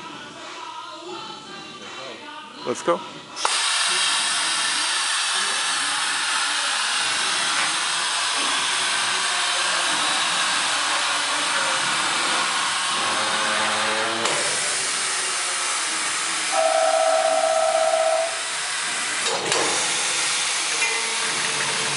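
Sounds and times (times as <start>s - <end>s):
compressed air hissing: 3.4s - 13.0s, 14.3s - 16.8s
faint tone: 16.6s - 18.4s.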